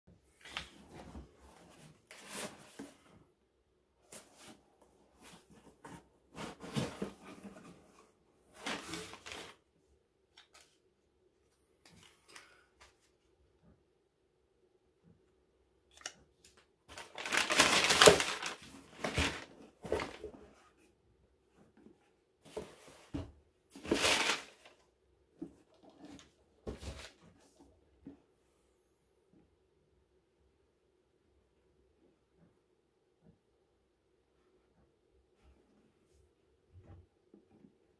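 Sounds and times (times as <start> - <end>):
cardboard box and paper rustling: 0.4 - 3.1, 5.2 - 9.6, 16.9 - 20.6, 22.4 - 24.8, 26.0 - 27.3
cardboard box scraping and rustling: 5.2 - 7.9.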